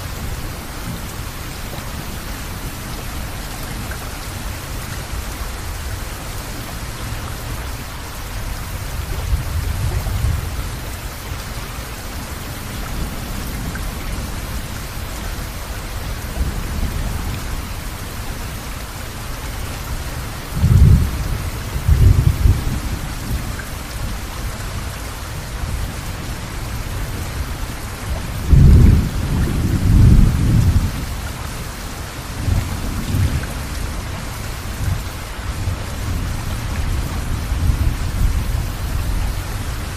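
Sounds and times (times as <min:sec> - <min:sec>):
heavy rain: 0:00.0 - 0:39.9
thunder rumbling: 0:20.4 - 0:24.3, 0:25.7 - 0:31.3.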